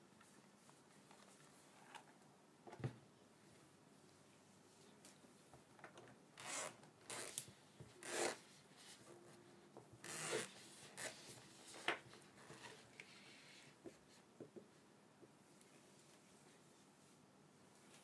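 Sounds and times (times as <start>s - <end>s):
zip being pulled: 6.4s - 7.4s, 8.0s - 8.4s, 10.0s - 11.2s.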